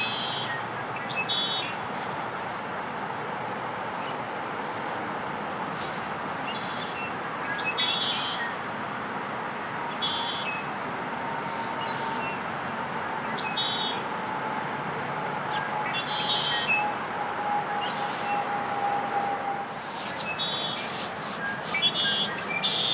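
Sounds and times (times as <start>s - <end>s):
blackbird singing buzzy phrases: 20.0s - 22.9s.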